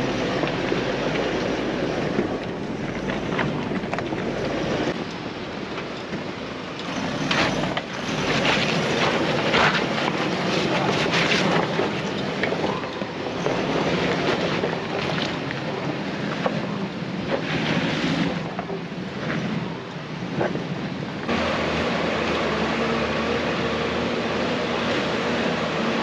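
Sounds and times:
stones crunching under tyres: 0:00.0 - 0:05.0, 0:06.8 - 0:18.4.

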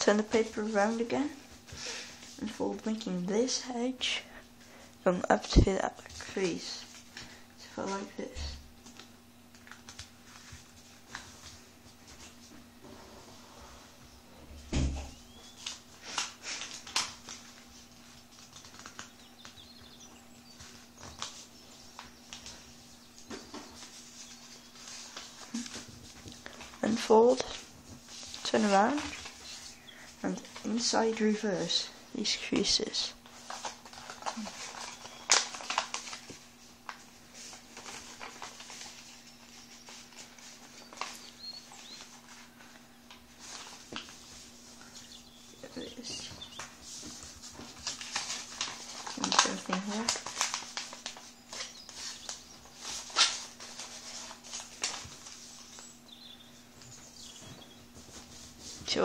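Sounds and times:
faint steady hum: 0:00.0 - 0:59.0
paper being folded and creased: 0:08.8 - 0:12.5, 0:15.4 - 0:29.8, 0:33.2 - 0:56.0.

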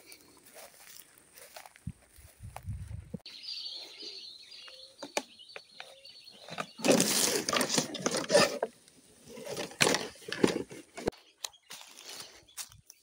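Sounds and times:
birds chirping: 0:03.2 - 0:13.0
rustling and crunching: 0:05.8 - 0:13.0.

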